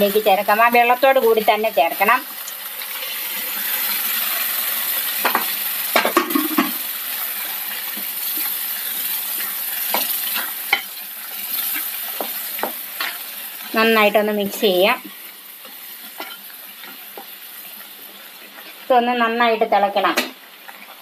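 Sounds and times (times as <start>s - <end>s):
curry sizzling in a pan: 0.0s - 21.0s
spatula knocking and scraping pan: 5.2s - 6.8s, 9.4s - 10.9s, 11.6s - 13.2s.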